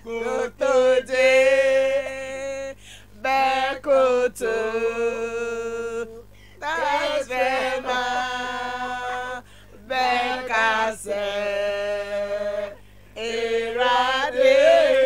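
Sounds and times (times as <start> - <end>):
short breaths: 2.8 - 3.2, 6.3 - 6.6, 9.4 - 9.8.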